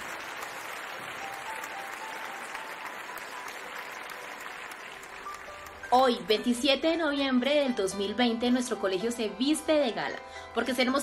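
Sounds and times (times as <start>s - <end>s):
applause: 0.0s - 6.2s
soft background music: 0.7s - 11.0s.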